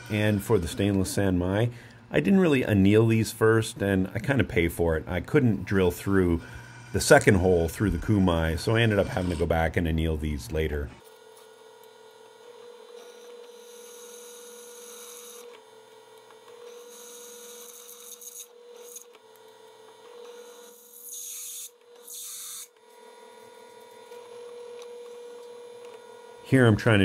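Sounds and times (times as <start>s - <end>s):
drill bit scraping metal: 0.0s - 1.2s, 6.4s - 9.7s
drill press motor humming: 11.0s - 26.5s.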